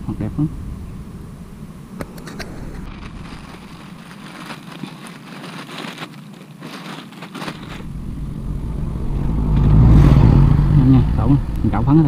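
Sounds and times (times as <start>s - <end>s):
rustling and crackling handling: 2.0s - 7.9s
low rumble: 7.5s - 12.0s.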